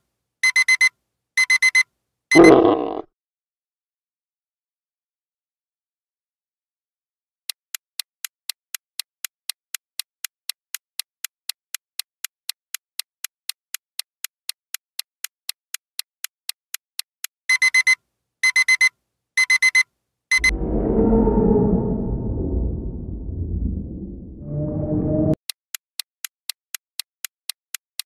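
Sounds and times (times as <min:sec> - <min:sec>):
clock ticking: 0:00.4 - 0:02.5, 0:07.5 - 0:19.8, 0:25.4 - 0:28.0
electronic alarm beeps: 0:00.4 - 0:02.6, 0:17.5 - 0:20.6
low rumbling: 0:20.4 - 0:25.4.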